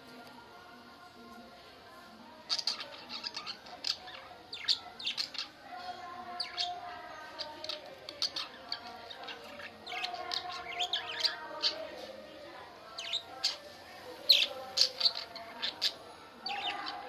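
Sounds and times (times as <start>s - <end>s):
budgerigars chattering: 14.2s - 17.0s.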